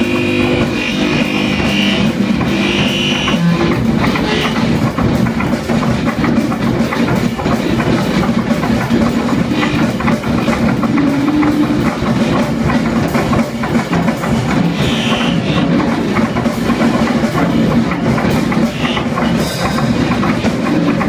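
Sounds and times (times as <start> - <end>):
sustained low tones: 0.0 - 5.3
quick drum strikes: 0.0 - 21.0.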